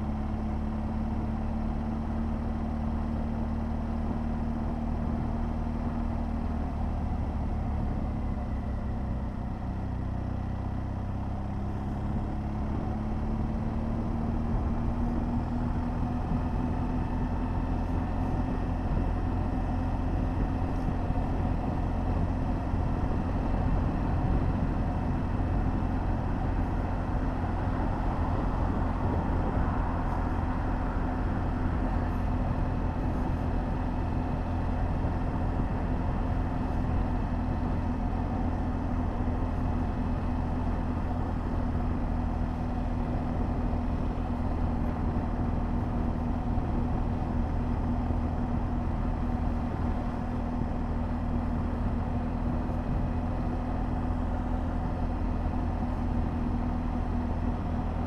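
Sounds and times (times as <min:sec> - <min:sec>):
motorcycle engine running: 0:00.0 - 0:58.0
road noise: 0:00.0 - 0:58.0
wind noise: 0:14.5 - 0:37.9.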